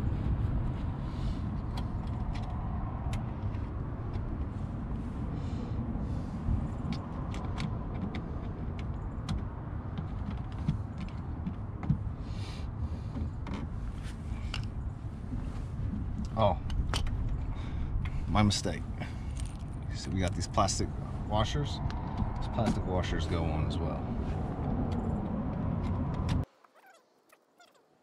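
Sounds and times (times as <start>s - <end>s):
low rumble: 13.8s - 26.5s.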